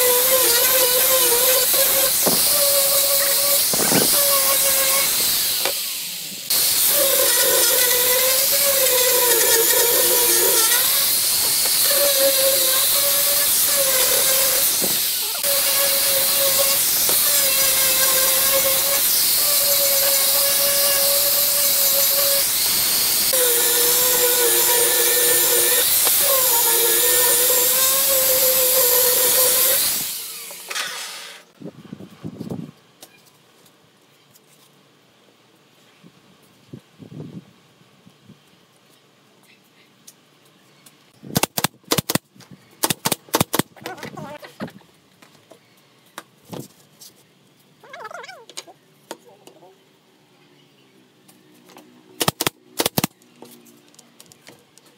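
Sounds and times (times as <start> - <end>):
angle grinder sanding wood: 0.0 - 31.4.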